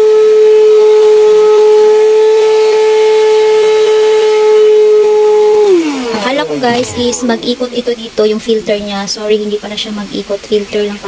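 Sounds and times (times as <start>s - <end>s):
handheld vacuum cleaner motor whining: 3.6s - 7.6s.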